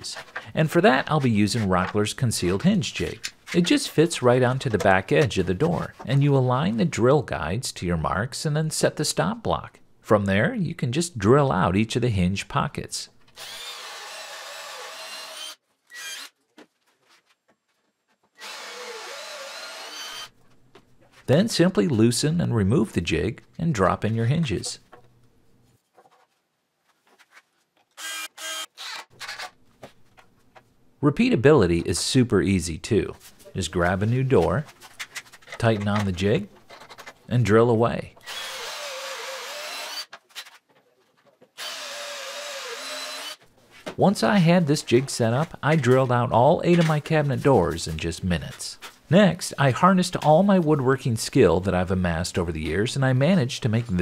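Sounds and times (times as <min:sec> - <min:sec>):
drill boring into wood: 0:13.4 - 0:16.3, 0:18.4 - 0:20.3, 0:28.0 - 0:29.4, 0:38.2 - 0:40.1, 0:41.6 - 0:43.4.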